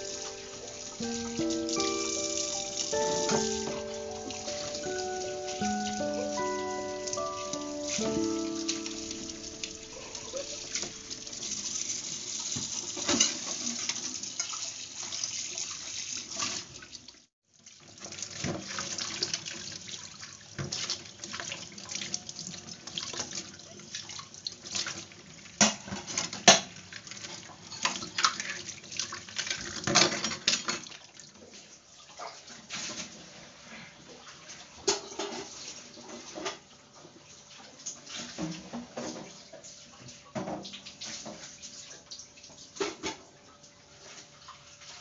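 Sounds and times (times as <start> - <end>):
tap water running into steel sink: 0.0 - 6.6, 7.2 - 25.2.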